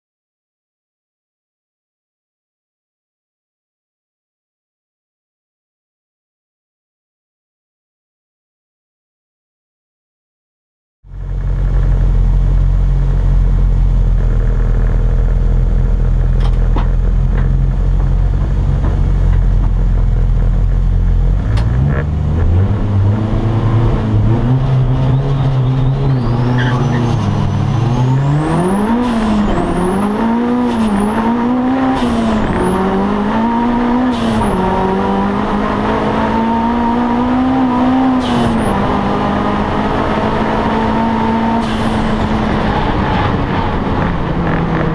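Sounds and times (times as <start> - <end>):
race car engine accelerating: 11.1 - 44.9.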